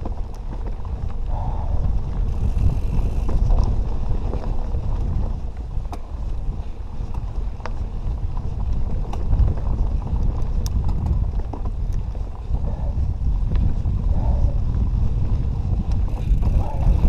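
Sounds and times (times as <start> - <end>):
bike clicks and knocks: 0.0 - 1.2, 2.0 - 12.6, 15.7 - 17.0
tyres on rocky ground: 0.0 - 17.0
wind rumble on microphone: 0.0 - 17.0.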